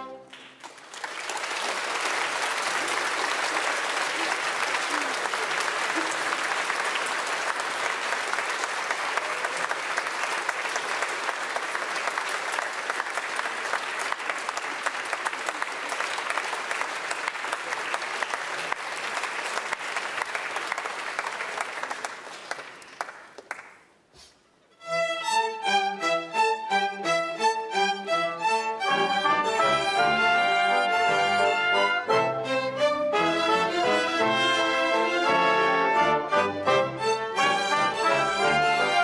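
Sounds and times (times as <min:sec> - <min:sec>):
audience applauding: 0:00.1 - 0:24.0.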